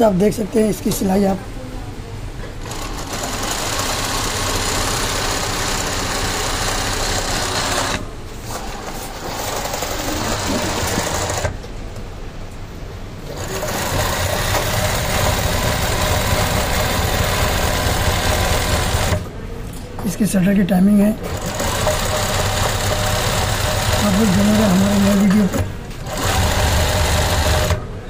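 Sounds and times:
sewing machine stitching: 0:02.6 - 0:11.6, 0:13.2 - 0:19.3, 0:21.2 - 0:27.9.

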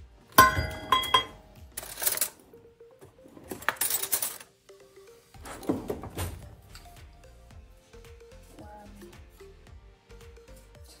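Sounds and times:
rattling handling noise: 0:00.4 - 0:02.4
kitchenware clinking: 0:00.4 - 0:02.5, 0:03.3 - 0:04.5.

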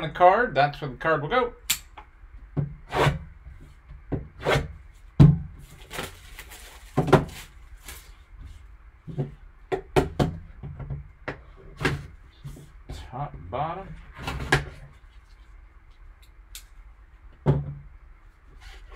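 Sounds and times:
plastic rustle: 0:05.6 - 0:08.6.

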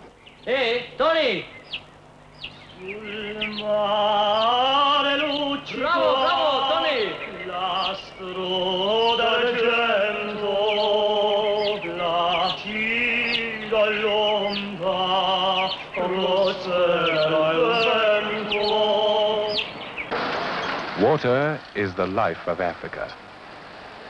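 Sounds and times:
men singing chant-like song: 0:02.6 - 0:20.1.

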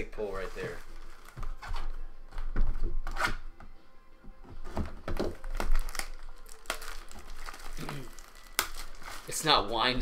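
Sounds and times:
faint music: 0:00.0 - 0:10.0.

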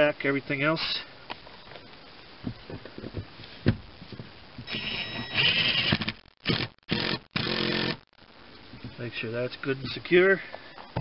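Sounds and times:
power driver motor whining: 0:04.7 - 0:08.1.

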